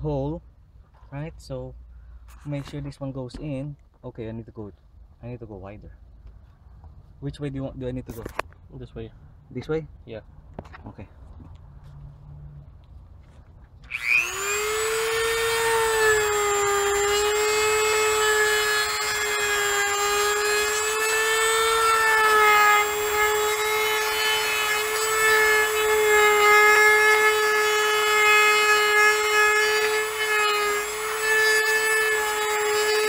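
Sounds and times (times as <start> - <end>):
rotary tool grinding plastic: 13.9 - 33.0.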